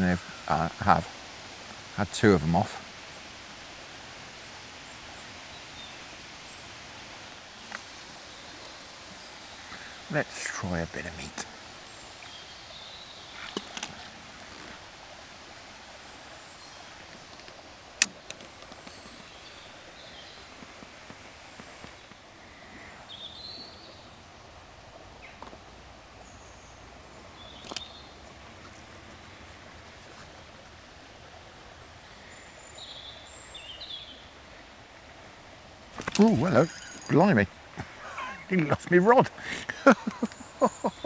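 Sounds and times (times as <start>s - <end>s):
water running over weir: 34.3s - 41.0s
bird chirps: 36.1s - 37.3s, 40.0s - 41.0s.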